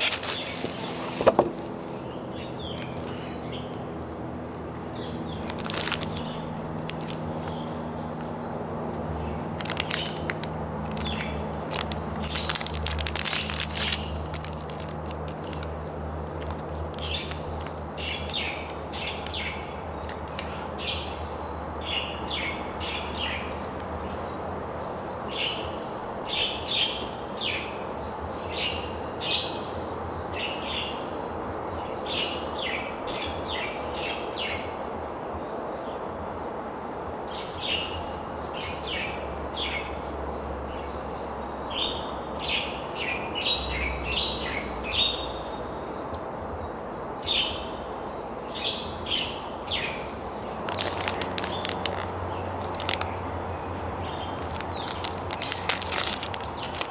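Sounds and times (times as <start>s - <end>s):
plastic wrapper crinkling: 0.0s - 1.3s, 5.4s - 7.6s, 9.6s - 18.4s, 20.0s - 20.5s, 50.6s - 53.2s, 54.4s - 56.9s
small birds chirping: 0.0s - 36.4s, 37.3s - 56.9s
low background hum: 0.1s - 24.9s.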